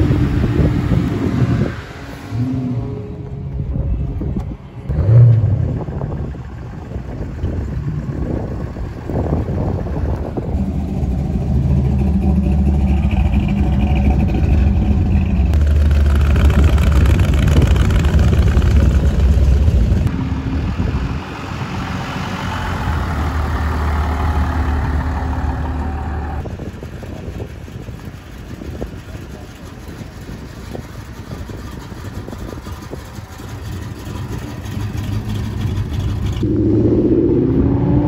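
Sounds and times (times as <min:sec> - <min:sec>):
vintage car engine passing: 0:04.8 - 0:38.0
hot rod engine passing: 0:04.9 - 0:27.0, 0:31.5 - 0:38.0
pickup truck engine passing: 0:04.9 - 0:27.1.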